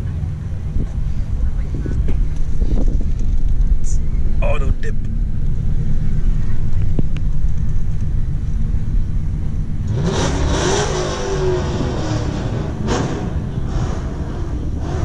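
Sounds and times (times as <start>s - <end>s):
car engine revving: 0.0s - 15.0s
low rumble: 0.0s - 15.0s.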